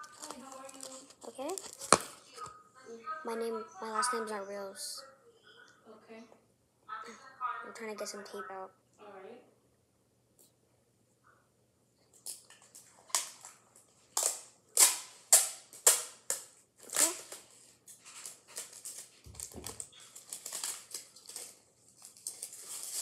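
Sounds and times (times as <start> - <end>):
crinkling of tape and paper: 0.0 - 2.5, 12.1 - 23.0
tape ripping off roll: 12.3 - 23.0.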